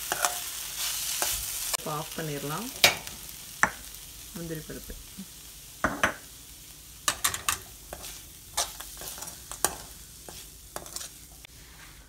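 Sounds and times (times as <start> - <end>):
metal spoon scraping a pan: 0.0 - 1.5, 7.1 - 11.5.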